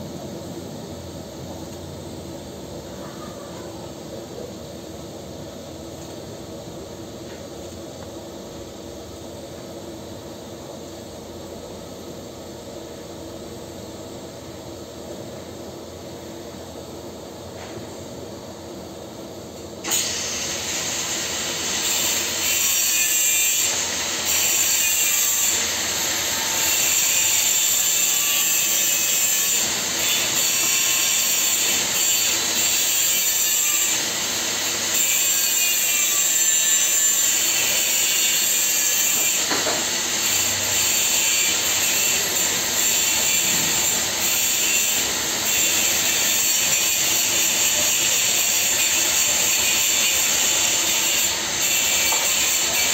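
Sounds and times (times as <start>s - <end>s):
welding arc hissing: 19.8s - 52.9s.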